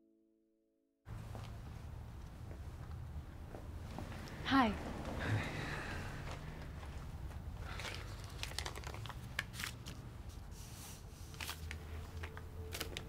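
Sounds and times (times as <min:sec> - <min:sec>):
paper rustling and crinkling: 0:07.6 - 0:13.0.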